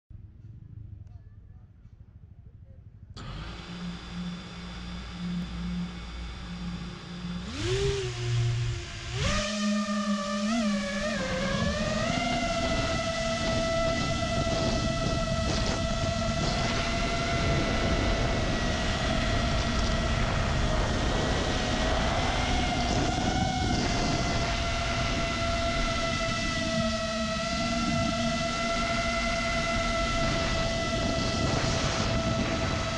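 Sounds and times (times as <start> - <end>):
drone motors whining: 3.2 - 32.9
wind rushing: 11.4 - 32.9.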